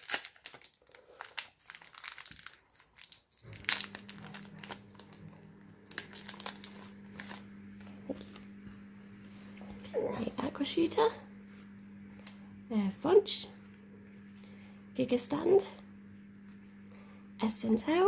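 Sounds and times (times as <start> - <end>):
foil wrapper crinkling and tearing: 0.0 - 8.4.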